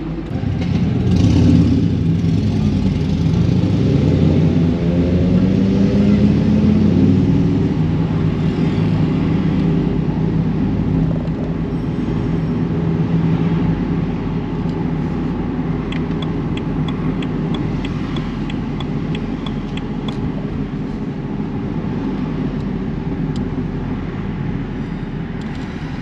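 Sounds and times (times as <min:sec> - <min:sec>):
car engine hum: 0:00.0 - 0:26.0
road noise: 0:00.0 - 0:26.0
light regular ticking: 0:15.9 - 0:20.4.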